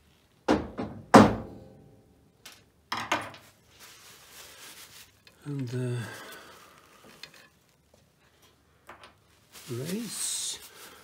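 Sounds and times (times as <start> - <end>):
faint handling noise: 2.4 - 11.0.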